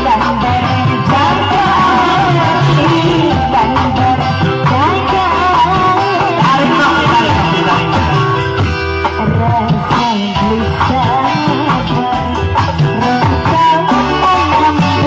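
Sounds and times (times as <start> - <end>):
live instrumental accompaniment: 0.0 - 15.0
woman singing into microphone: 0.0 - 15.0.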